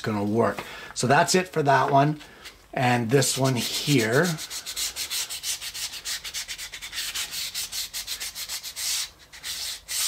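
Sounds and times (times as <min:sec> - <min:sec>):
hand sanding wood with sandpaper: 0:03.2 - 0:10.0.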